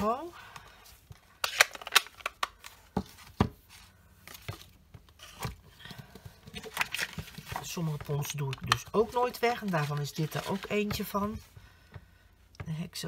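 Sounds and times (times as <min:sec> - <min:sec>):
paper rustling: 0:06.5 - 0:11.5.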